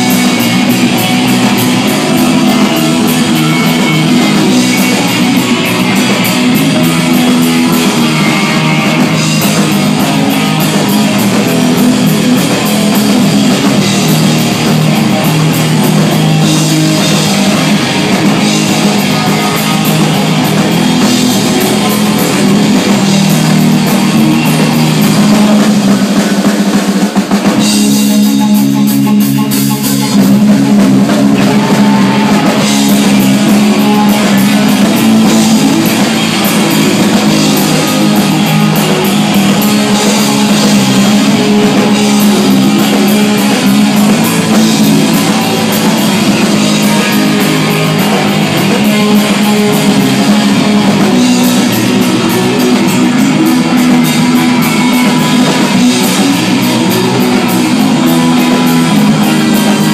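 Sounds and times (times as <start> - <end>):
punk rock band playing live: 0.0 - 59.9.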